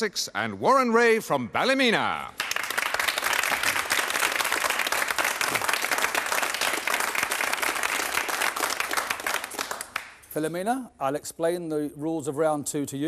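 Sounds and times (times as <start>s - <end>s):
audience applauding: 2.4s - 10.2s.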